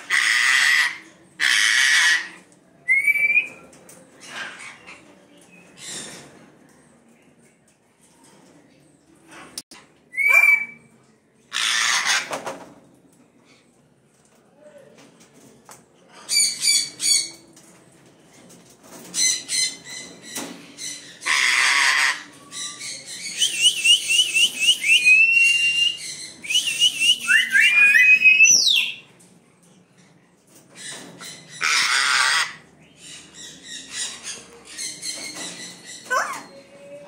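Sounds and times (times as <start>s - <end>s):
parrots squawking: 0.0s - 2.4s, 11.5s - 12.4s, 21.1s - 22.3s, 31.6s - 32.6s, 33.8s - 36.7s
parrot screeches: 0.1s - 2.4s, 11.5s - 12.3s, 21.2s - 22.2s, 31.6s - 32.6s.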